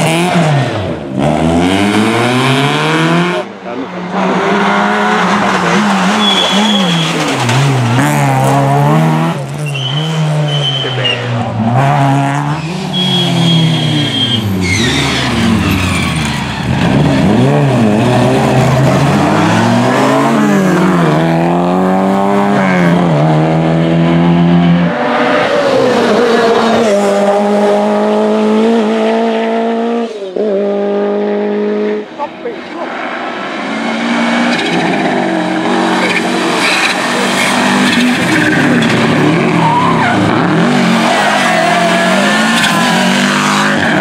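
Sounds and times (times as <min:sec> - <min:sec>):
rally car engines revving: 0:00.0 - 0:44.0
tyre squeals: 0:05.9 - 0:08.1, 0:09.6 - 0:11.3, 0:12.5 - 0:19.7, 0:36.0 - 0:44.0.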